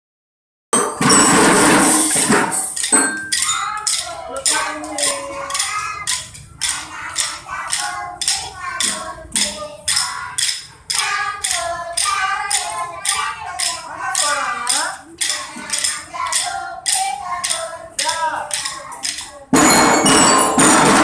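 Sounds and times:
snare drums beating: 0.8s - 18.8s, 19.5s - 21.0s
children singing: 1.1s - 21.0s.

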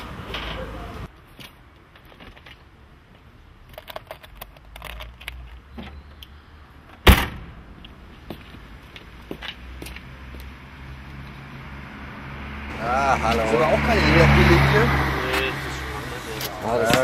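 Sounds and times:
car boot lid slamming shut: 7.0s - 7.5s.

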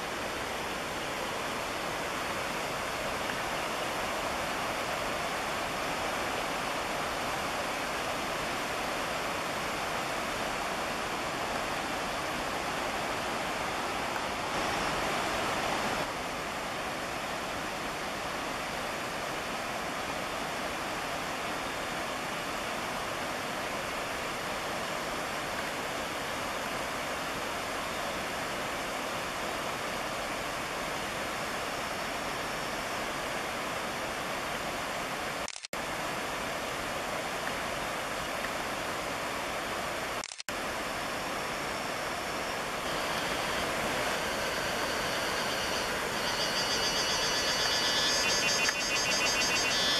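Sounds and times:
steady rushing noise: 40.2s - 49.9s.

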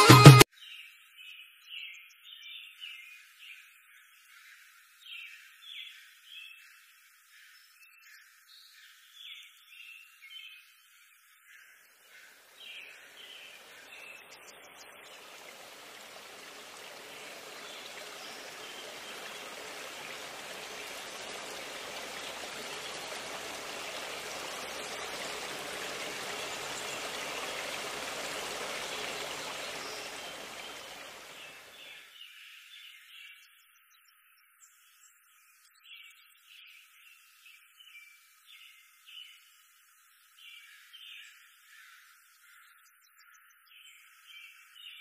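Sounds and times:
river water rushing: 12.6s - 32.0s.

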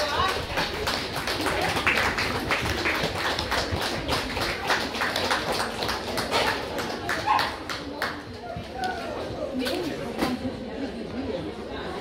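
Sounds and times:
spectators clapping: 0.0s - 8.4s.

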